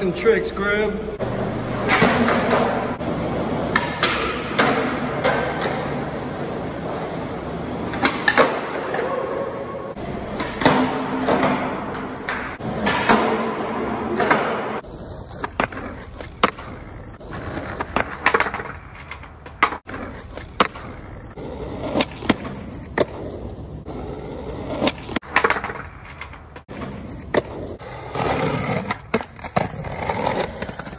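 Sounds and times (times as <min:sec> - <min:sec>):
skateboard wheels rolling on concrete: 0:00.0 - 0:30.9
skateboard pops and clacks: 0:03.7 - 0:05.8, 0:10.4 - 0:21.0, 0:21.8 - 0:23.3, 0:24.7 - 0:27.6.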